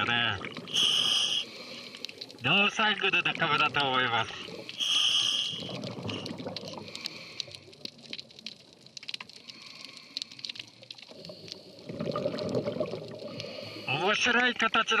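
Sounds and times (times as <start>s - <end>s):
bubbles gurgling: 0.0s - 9.1s, 10.7s - 13.7s
diver breathing underwater: 0.6s - 2.4s, 4.4s - 7.8s, 9.4s - 14.0s
crackle of tiny clicks: 1.8s - 2.4s, 5.6s - 13.6s.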